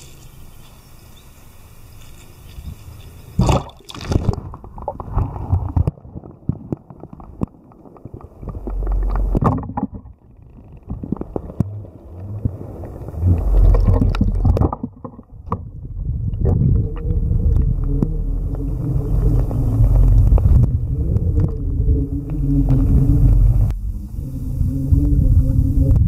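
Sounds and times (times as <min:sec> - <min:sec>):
underwater rumbling: 0:02.3 - 0:26.0
camera splashing into river: 0:03.4 - 0:06.0.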